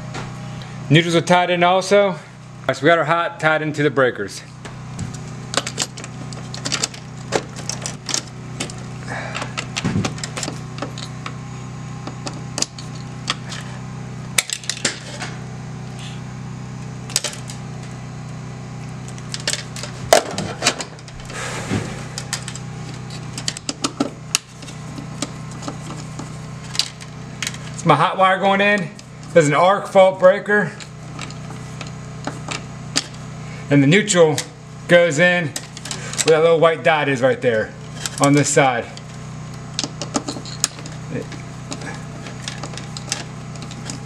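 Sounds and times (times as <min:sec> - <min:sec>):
steady low hum: 0:00.0 - 0:44.0
hand tools clicking and scraping: 0:04.6 - 0:11.4, 0:12.0 - 0:13.8, 0:14.4 - 0:15.4, 0:17.1 - 0:17.9, 0:19.0 - 0:29.5, 0:30.6 - 0:33.6, 0:35.5 - 0:36.4, 0:37.8 - 0:44.0.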